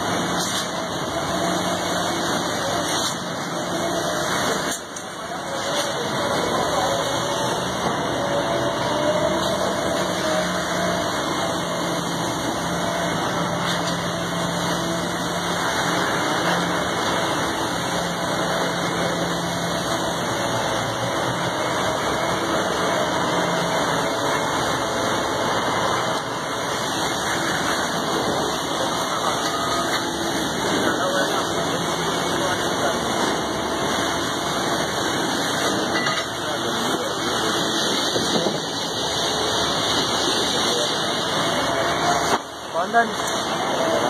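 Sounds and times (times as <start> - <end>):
heavy machinery engine drone: 0.0 - 44.0.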